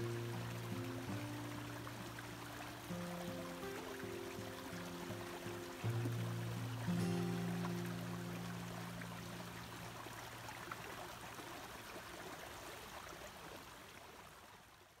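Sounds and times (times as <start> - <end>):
background music: 0.0 - 9.6
brook running: 0.0 - 15.0.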